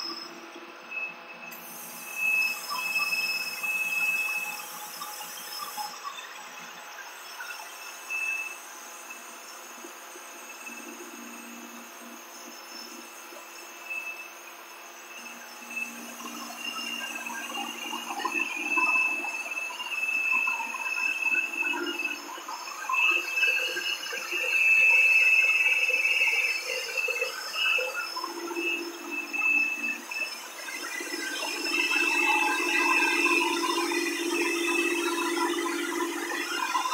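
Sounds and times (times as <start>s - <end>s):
high whine: 24.0s - 36.9s.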